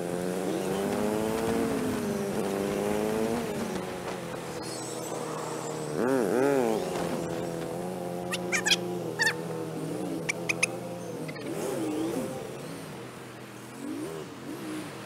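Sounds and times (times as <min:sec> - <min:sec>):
motorcycle engine running: 0:05.7 - 0:14.0.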